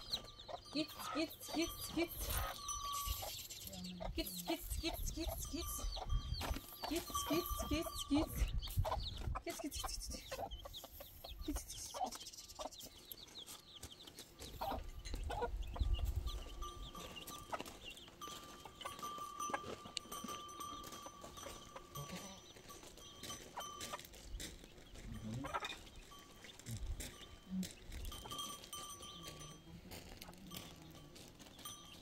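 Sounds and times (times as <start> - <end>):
livestock calls: 0.0 - 8.5
chickens clucking: 0.0 - 32.0
rapid high chirps: 2.2 - 3.8.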